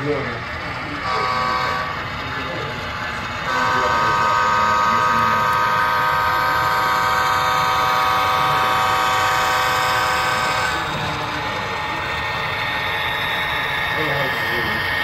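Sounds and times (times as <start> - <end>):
model locomotive horn blast: 1.0 - 2.0, 3.5 - 11.2.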